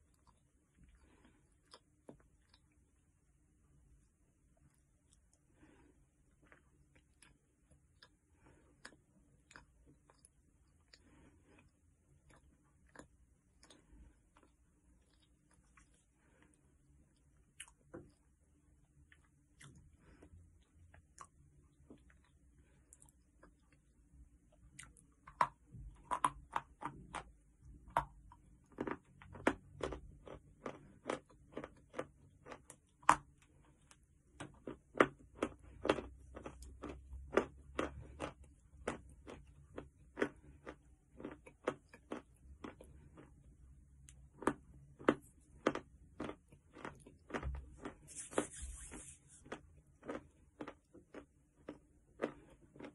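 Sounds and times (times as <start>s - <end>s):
chalk crunching between teeth: 47.8s - 50.2s.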